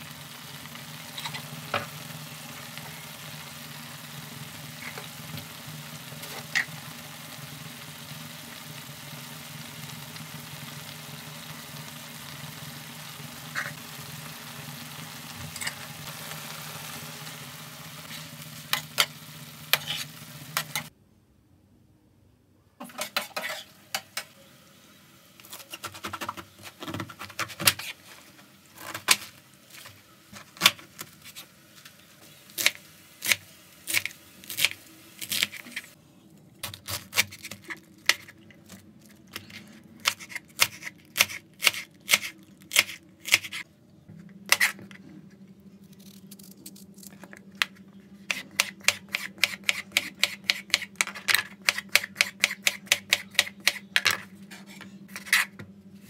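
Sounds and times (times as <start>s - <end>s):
food sizzling in a frying pan: 0.0s - 20.9s, 28.0s - 36.0s.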